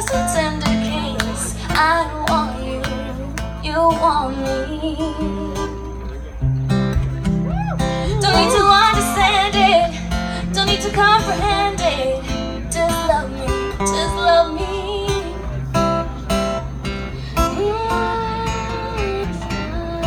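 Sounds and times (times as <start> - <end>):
woman singing with vibrato: 0.0 - 5.7, 8.0 - 15.5, 17.4 - 20.0
strummed acoustic guitar: 0.0 - 20.0.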